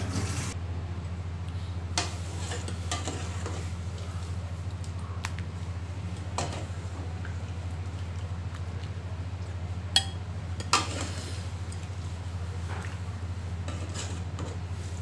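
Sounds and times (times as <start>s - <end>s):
steady low hum: 0.0s - 15.0s
ladle scooping soup in a pot: 6.4s - 15.0s
metal clinking on pot and bowl: 10.0s - 10.9s.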